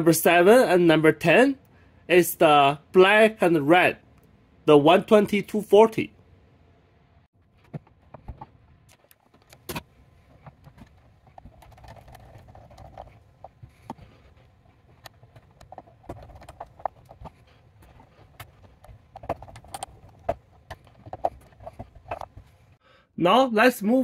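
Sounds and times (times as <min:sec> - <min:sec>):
wire strippers stripping insulation: 0:08.9 - 0:22.8.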